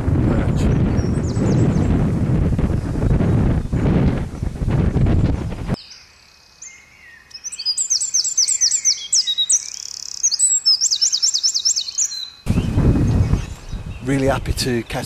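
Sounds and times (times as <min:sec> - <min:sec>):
wind buffeting microphone: 0:00.0 - 0:05.8, 0:12.4 - 0:15.0
songbird chirping and whistling: 0:05.8 - 0:14.1.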